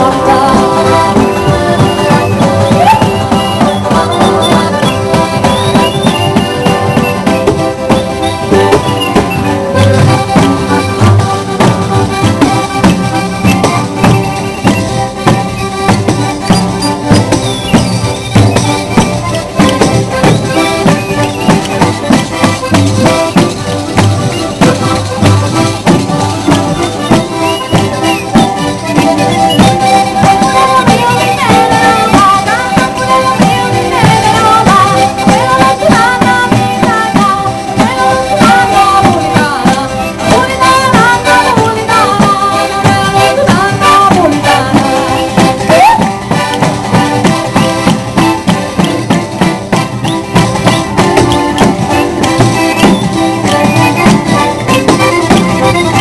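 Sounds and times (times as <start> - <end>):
woman singing: 0.0 - 7.4, 28.4 - 47.8
accordions playing: 0.0 - 56.0
frame drum with jingles: 0.0 - 56.0.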